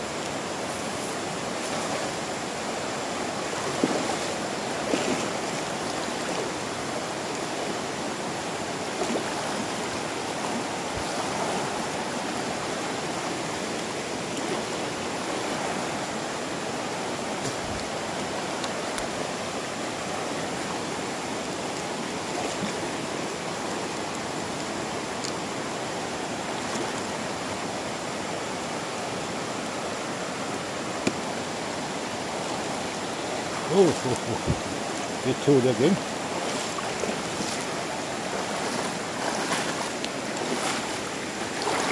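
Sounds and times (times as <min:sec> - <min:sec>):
river rushing over rocks: 0:00.0 - 0:41.9.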